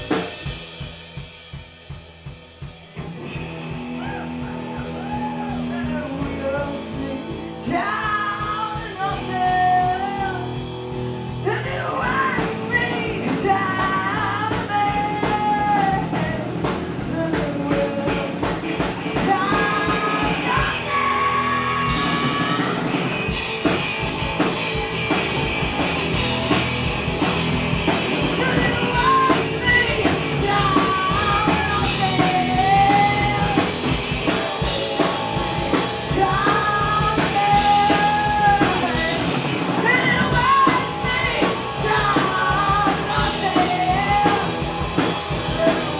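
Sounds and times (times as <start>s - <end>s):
punk rock band playing: 0.0s - 45.9s
person singing and shouting: 3.9s - 10.6s, 11.3s - 23.2s, 28.2s - 34.4s, 35.7s - 45.9s.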